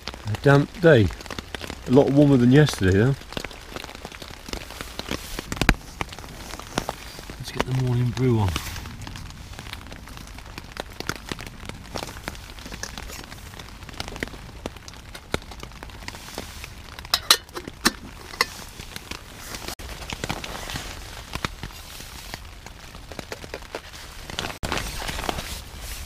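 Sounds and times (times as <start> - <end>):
rain pattering on tent fabric: 0.0 - 26.0
metal pot and mug clinking: 17.1 - 18.6.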